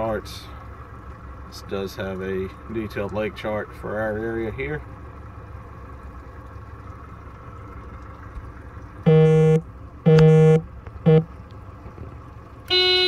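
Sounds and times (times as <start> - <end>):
outboard motor idling: 0.0 - 13.0
boat horn toots: 9.0 - 11.4, 12.6 - 13.0.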